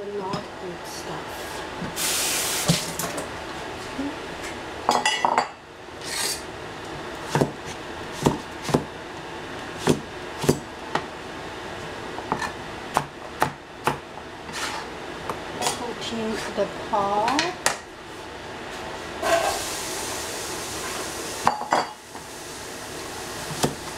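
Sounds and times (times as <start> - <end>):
cleaver chopping on cutting board: 7.3 - 7.6, 8.2 - 8.9, 9.8 - 10.6.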